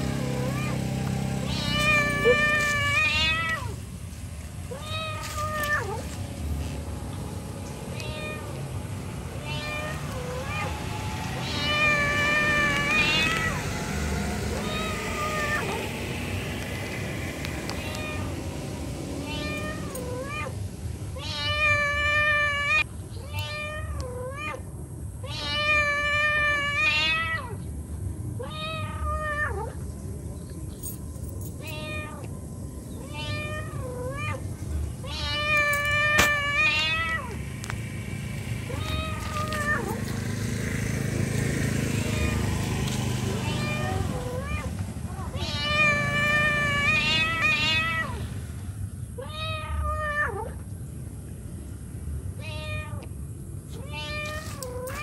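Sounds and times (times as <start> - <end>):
cat meowing: 0.2 - 0.8, 1.4 - 3.8, 4.7 - 6.1, 7.9 - 8.6, 9.4 - 13.6, 14.5 - 15.8, 17.7 - 18.3, 19.2 - 20.5, 21.2 - 24.6, 25.2 - 27.6, 28.4 - 29.8, 31.6 - 32.2, 33.0 - 37.4, 38.7 - 40.1, 41.8 - 42.6, 43.3 - 48.2, 49.2 - 50.6, 52.4 - 53.1, 53.8 - 55.0.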